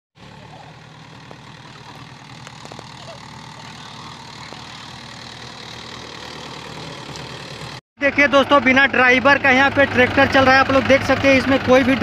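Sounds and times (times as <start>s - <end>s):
tractor diesel engine running: 0.2s - 12.0s.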